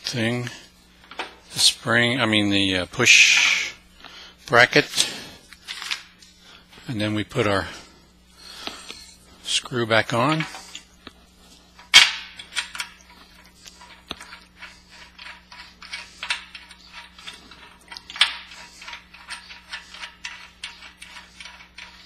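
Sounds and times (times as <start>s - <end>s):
metal nut clicking and scraping: 8.6s - 9.2s, 11.8s - 22.0s.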